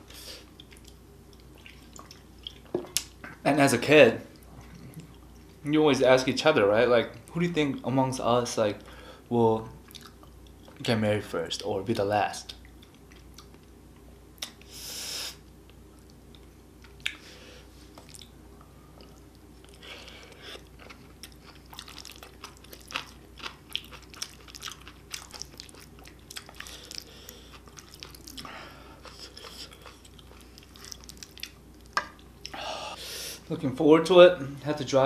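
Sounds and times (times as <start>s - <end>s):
chewing and mouth sounds: 0.4s - 3.4s, 9.8s - 10.8s, 12.6s - 13.6s, 17.9s - 18.4s, 19.0s - 32.6s.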